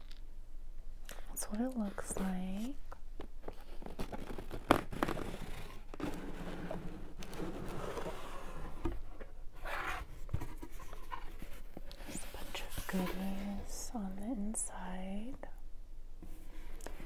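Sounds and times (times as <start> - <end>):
cardboard scraping and rustling: 3.4 - 13.6.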